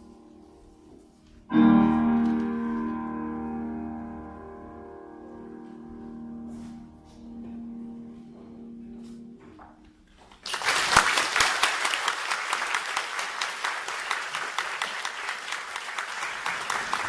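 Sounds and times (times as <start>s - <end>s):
piano chord: 0.0s - 10.1s
audience applauding: 10.3s - 17.0s.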